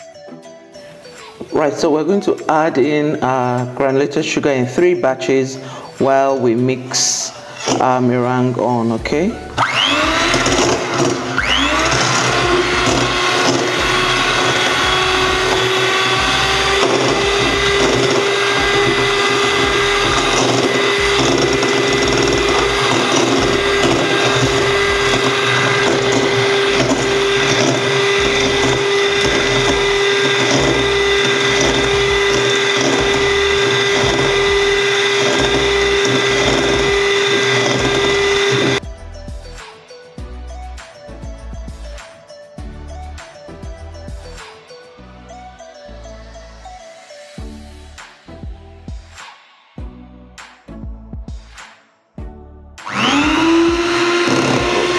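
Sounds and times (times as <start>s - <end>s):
electric hand mixer whining: 7.6s - 8.0s, 9.4s - 38.8s, 52.8s - 54.9s.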